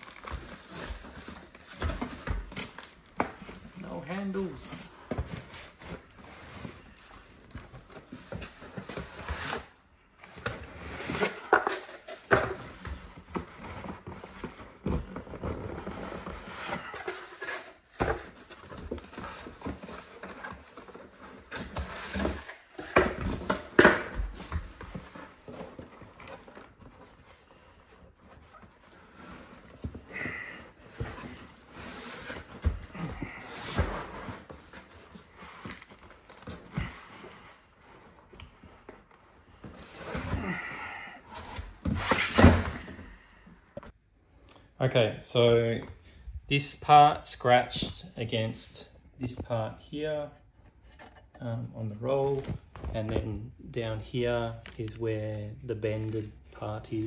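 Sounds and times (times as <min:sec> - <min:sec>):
cardboard and plastic wrap scraping: 0:00.0 - 0:43.2.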